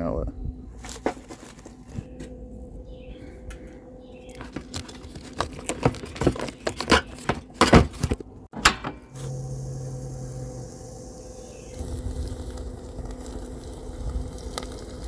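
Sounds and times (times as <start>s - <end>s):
steady hum with hiss: 9.0s - 15.0s.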